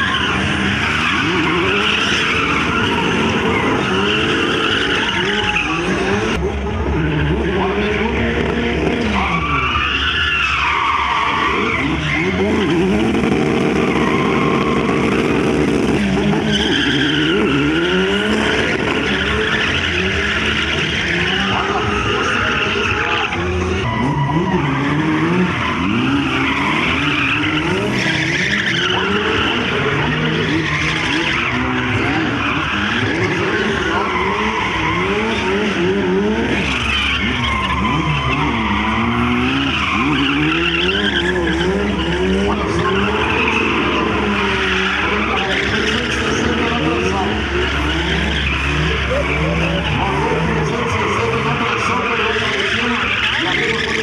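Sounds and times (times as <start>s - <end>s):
car engines revving hard: 0.0s - 54.0s
tyres squealing and skidding: 0.0s - 54.0s.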